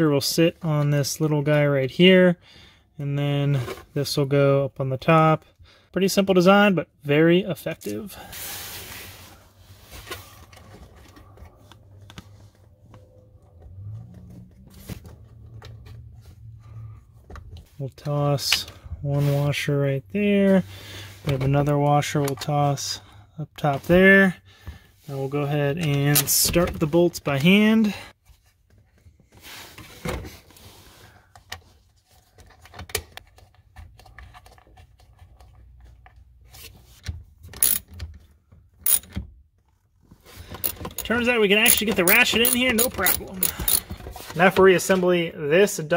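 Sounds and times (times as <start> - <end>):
small parts clicking: 37.6 - 37.8, 38.8 - 39.0, 40.6 - 41.1, 41.7 - 43.8.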